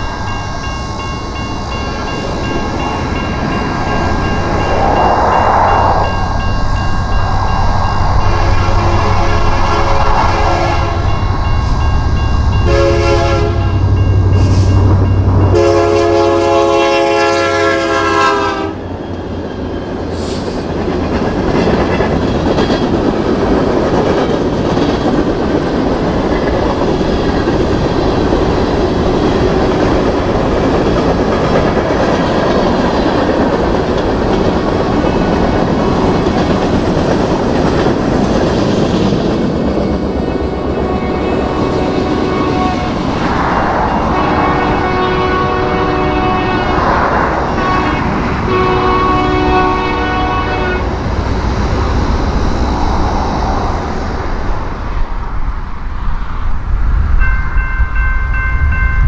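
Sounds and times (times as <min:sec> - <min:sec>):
train wheels rumbling on rails: 0:00.0 - 0:59.0
locomotive air horn: 0:08.3 - 0:11.1, 0:12.6 - 0:13.8, 0:15.4 - 0:18.9, 0:40.7 - 0:42.9, 0:44.1 - 0:46.9, 0:47.6 - 0:50.9.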